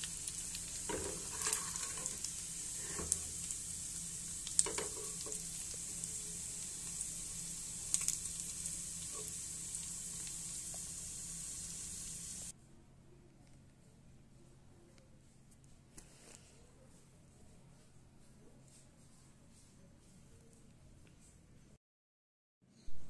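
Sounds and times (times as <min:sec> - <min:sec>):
meat sizzling in hot oil: 0:00.0 - 0:12.5
metal spatula scraping a pan: 0:00.8 - 0:03.4, 0:04.6 - 0:05.4.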